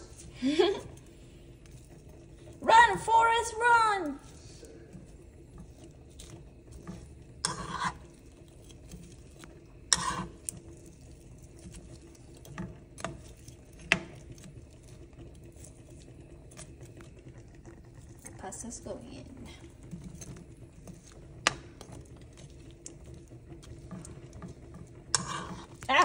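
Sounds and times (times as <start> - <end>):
spoon scraping frying pan: 4.3 - 18.0, 19.6 - 26.0.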